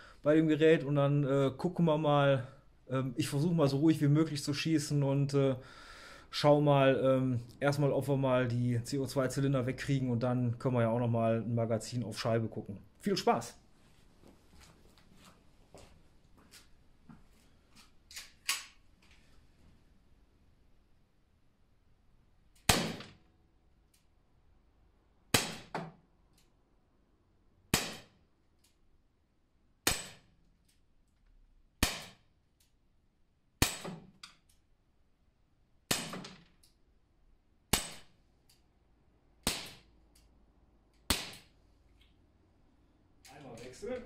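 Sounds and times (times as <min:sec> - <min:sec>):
air pistol shots: 0:22.6 - 0:23.2, 0:25.3 - 0:25.8, 0:27.7 - 0:28.2, 0:29.8 - 0:30.3, 0:31.8 - 0:32.2, 0:33.6 - 0:34.1, 0:35.9 - 0:36.4, 0:37.7 - 0:38.1, 0:39.4 - 0:39.9, 0:41.1 - 0:41.5.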